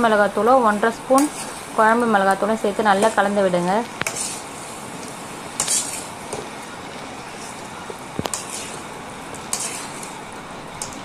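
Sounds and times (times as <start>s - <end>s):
chicken sizzling in oil: 0.0s - 11.0s
metal spatula scraping pan: 1.1s - 1.7s, 4.0s - 4.5s, 5.6s - 6.1s, 8.2s - 10.2s.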